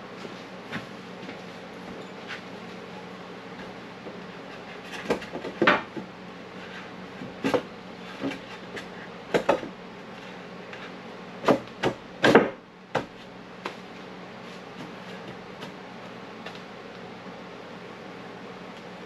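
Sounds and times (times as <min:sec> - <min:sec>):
steady low hum: 0:00.0 - 0:19.0
wooden boards clunking: 0:05.0 - 0:06.1.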